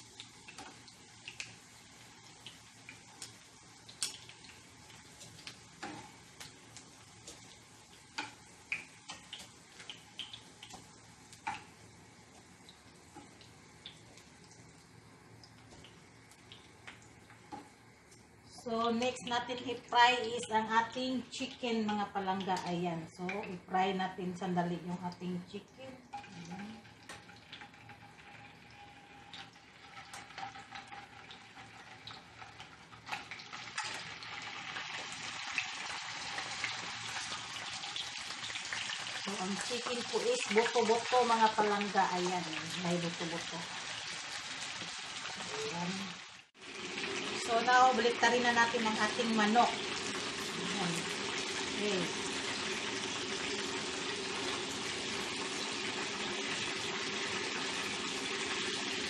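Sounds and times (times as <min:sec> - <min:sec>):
oil sizzling: 0:00.0 - 0:59.0.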